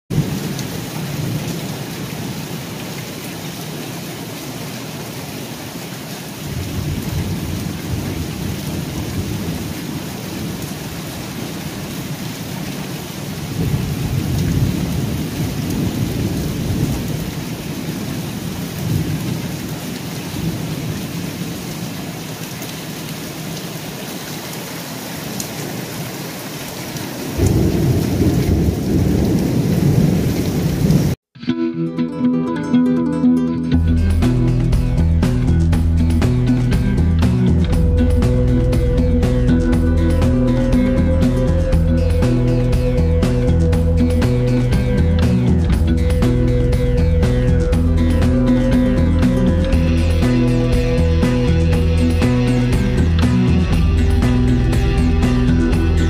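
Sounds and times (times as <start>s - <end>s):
thunder rumbling: 0.1s - 2.8s, 6.4s - 21.9s, 27.2s - 31.2s, 37.1s - 56.0s
steady rain: 0.1s - 31.2s, 33.8s - 56.0s.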